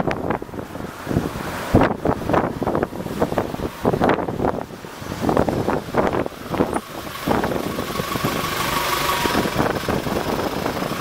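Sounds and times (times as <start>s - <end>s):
cars driving past: 0.0s - 11.0s
truck approaching: 0.0s - 11.0s.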